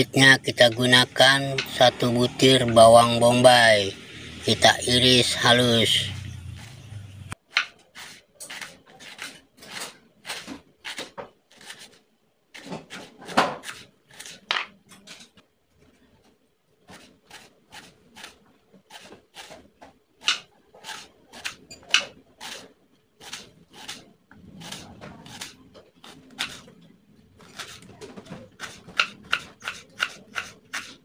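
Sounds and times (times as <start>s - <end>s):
knife slicing onion on wooden board: 7.5s - 12.0s, 12.6s - 15.2s, 16.9s - 26.7s, 27.4s - 31.0s.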